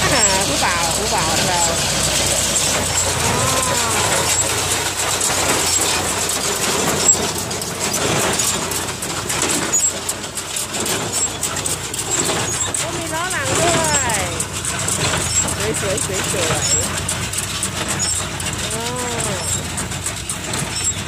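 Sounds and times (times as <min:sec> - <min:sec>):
baler clattering and knocking: 0:00.0 - 0:21.0
tractor diesel engine running: 0:00.0 - 0:21.0.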